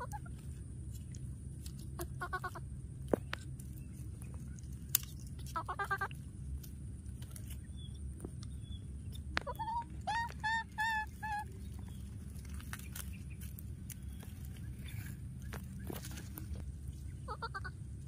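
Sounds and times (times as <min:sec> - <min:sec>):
baby monkey crying: 0:00.0 - 0:00.4, 0:02.0 - 0:02.7, 0:05.5 - 0:06.2, 0:09.4 - 0:12.1, 0:17.1 - 0:18.0
low steady background noise: 0:00.0 - 0:18.0.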